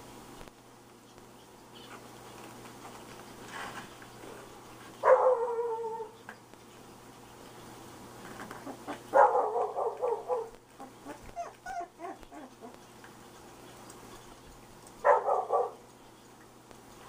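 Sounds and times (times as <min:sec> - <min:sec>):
puppies yelping: 0:08.5 - 0:13.1
puppies whimpering: 0:10.8 - 0:13.1.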